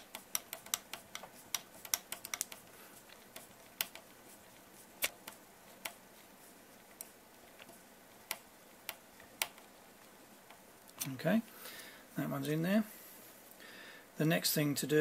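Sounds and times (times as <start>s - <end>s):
small plastic and metal parts clicking: 0.0s - 4.1s.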